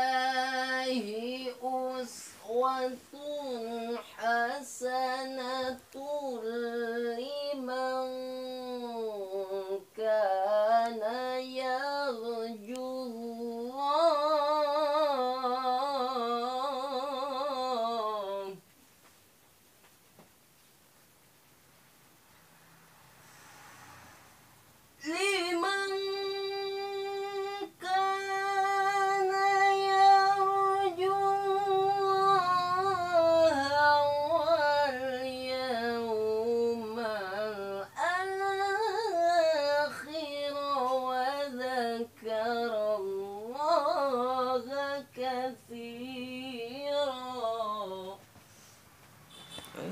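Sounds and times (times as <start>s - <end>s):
solo voice chanting: 0.0s - 18.6s.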